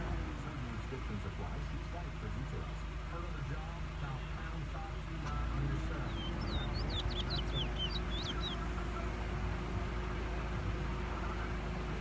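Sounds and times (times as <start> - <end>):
finch singing high whistled notes: 6.0 - 8.7.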